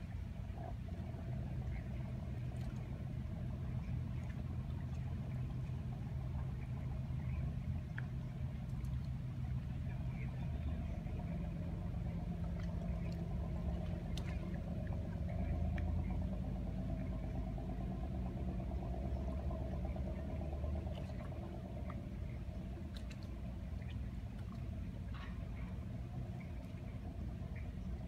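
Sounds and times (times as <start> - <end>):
engine idling: 0.0 - 28.0
faint ticks: 7.7 - 9.2, 22.7 - 25.8.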